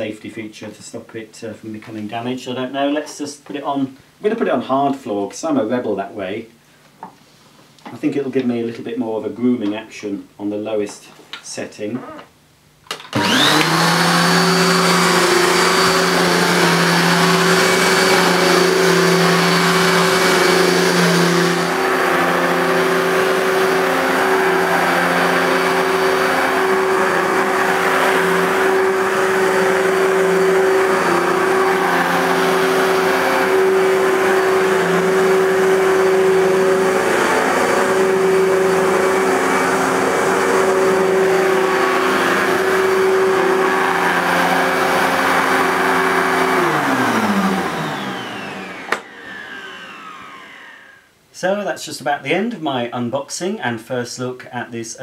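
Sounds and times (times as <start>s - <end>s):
vacuum cleaner motor whining: 12.9s - 51.1s.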